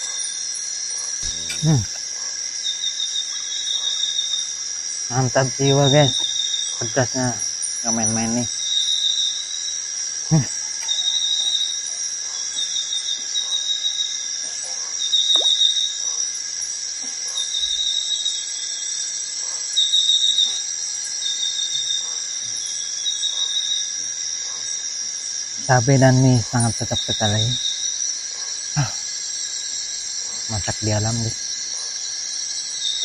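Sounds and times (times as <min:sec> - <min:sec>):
insect chirping: 0:00.0 - 0:33.0
insects droning: 0:00.0 - 0:33.0
person eating noodles: 0:01.2 - 0:02.0.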